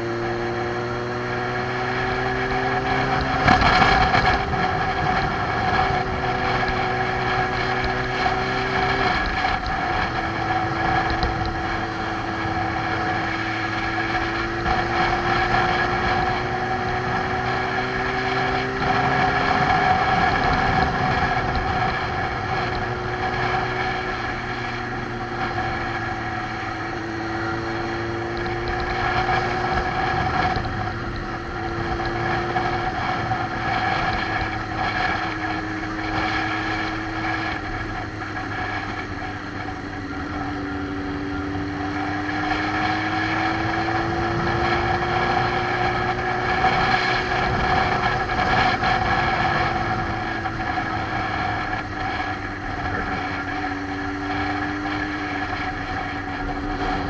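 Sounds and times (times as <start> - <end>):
motorcycle engine running: 0.0 - 57.0
wind rush: 1.6 - 57.0.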